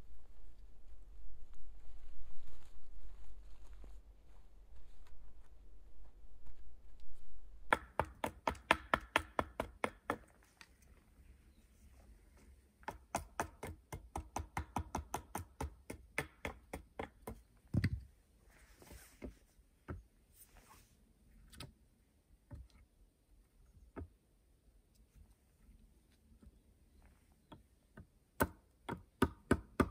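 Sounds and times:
sharp knocks on wood: 0:07.7 - 0:10.3.

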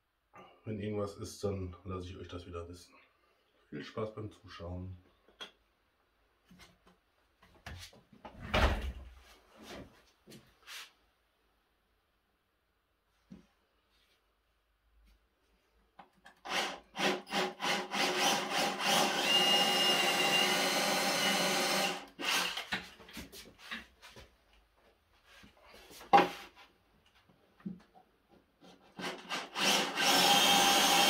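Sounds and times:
cordless drill boring into wood: 0:16.4 - 0:22.8, 0:29.0 - 0:31.0.

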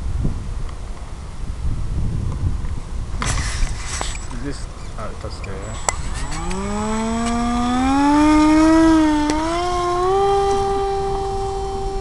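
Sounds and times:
model plane motor and propeller: 0:03.2 - 0:12.0.

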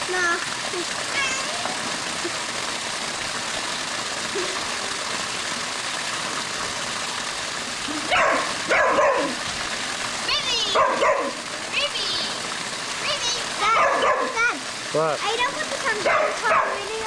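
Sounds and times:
waterfall splashing into pool: 0:00.0 - 0:17.0
dog barking: 0:08.1 - 0:09.4, 0:10.7 - 0:11.4, 0:13.7 - 0:14.4, 0:16.0 - 0:16.9.

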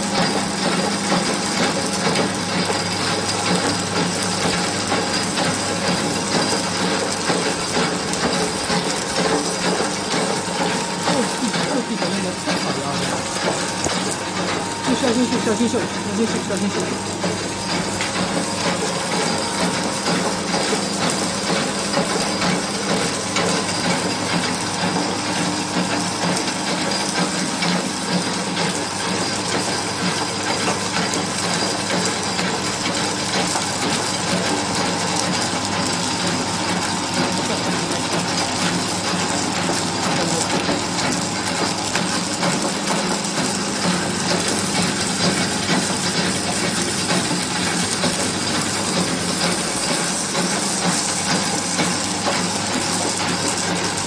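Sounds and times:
extruder motor hum: 0:00.0 - 0:26.5
dense crackle of clicks: 0:00.0 - 0:54.0.

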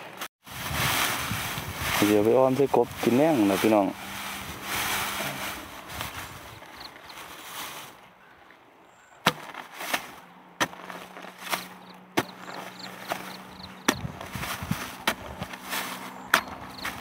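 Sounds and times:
spade chopping into hard soil: 0:09.2 - 0:17.0.

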